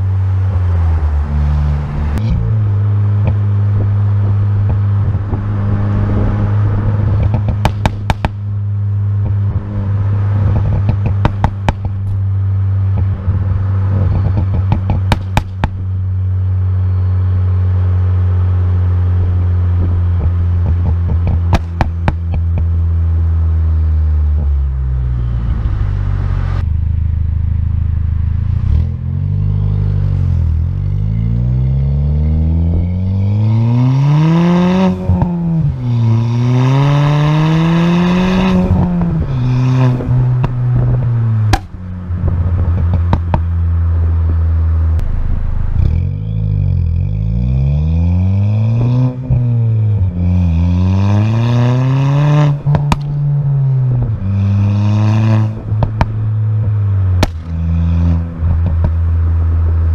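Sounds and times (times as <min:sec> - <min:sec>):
car engine running: 0:00.0 - 0:33.5, 0:37.3 - 0:50.3, 0:52.4 - 0:59.9
exhaust pops and crackles: 0:03.2 - 0:05.5, 0:07.0 - 0:08.5, 0:10.4 - 0:16.0, 0:19.8 - 0:23.0, 0:38.3 - 0:47.0, 0:52.5 - 0:54.4, 0:55.5 - 0:59.9.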